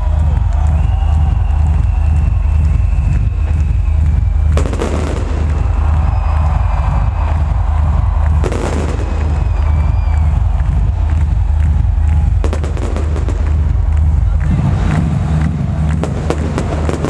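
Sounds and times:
electronic dance music: 0:00.0 - 0:17.0
stage fireworks banging: 0:00.0 - 0:17.0
fireworks crackling: 0:04.5 - 0:17.0.

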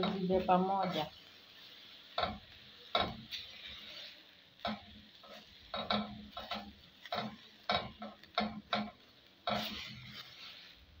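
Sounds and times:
faint sizzle: 0:00.0 - 0:11.0
utensil scraping and knocking a pan: 0:02.2 - 0:10.5.

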